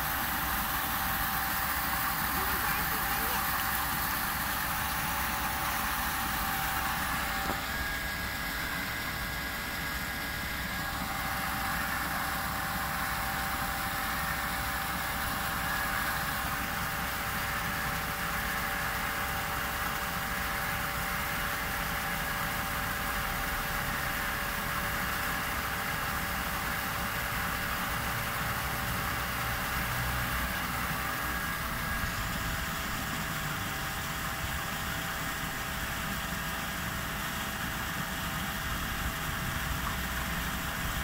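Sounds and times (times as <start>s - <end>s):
steady hum: 0.0s - 18.7s, 29.3s - 41.0s.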